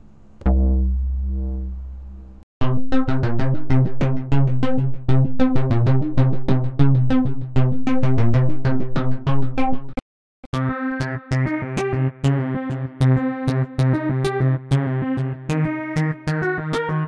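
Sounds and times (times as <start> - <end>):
deep held synth bass note: 0.4 - 2.4
fast repeating bass pattern: 0.4 - 2.4.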